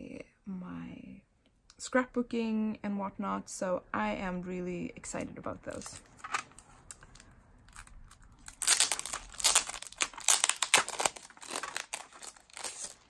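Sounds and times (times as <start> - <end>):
plastic wrapping crinkling: 5.7 - 13.0.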